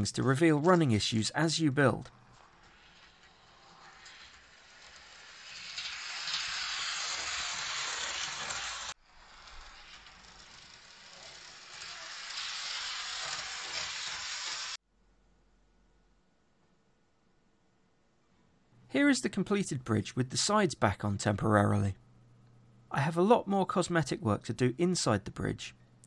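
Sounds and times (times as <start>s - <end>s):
model train wheels rolling on rails: 0.0s - 14.8s.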